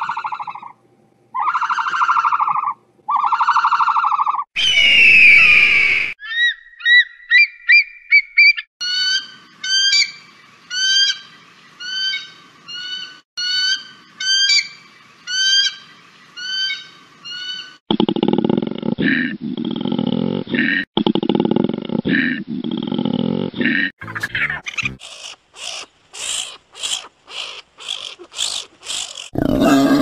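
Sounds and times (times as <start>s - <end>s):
bird of prey calls: 1.4s - 15.8s, 24.7s - 29.4s.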